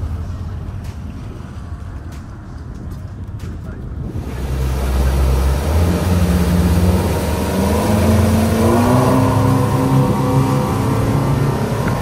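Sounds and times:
wind and water rushing: 0.0 - 12.0
outboard engines at full throttle: 3.9 - 12.0.

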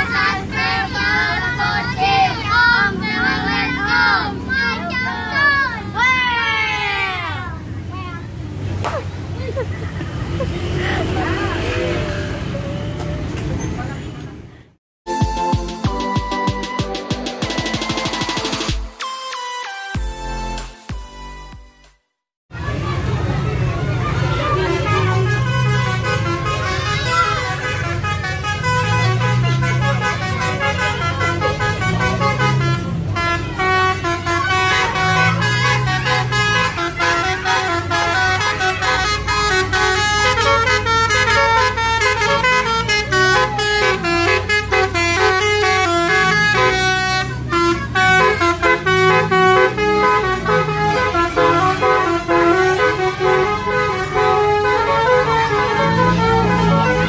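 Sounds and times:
multi-tone air horn tune: 24.6 - 57.0.

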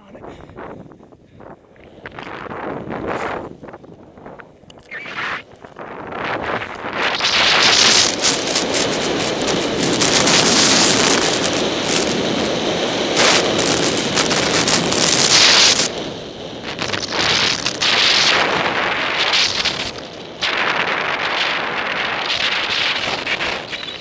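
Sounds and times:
wind rushing over microphone: 0.0 - 24.0
skis carving through snow: 4.8 - 24.0.

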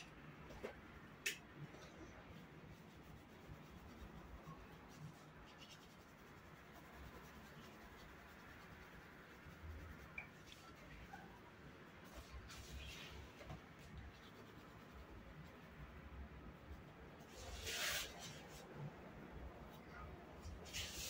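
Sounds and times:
pencils scratching on paper: 2.3 - 15.9.

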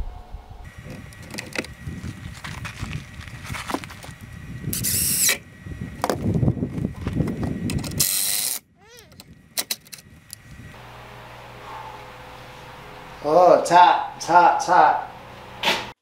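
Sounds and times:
wind rumbling on microphone: 0.0 - 10.8.

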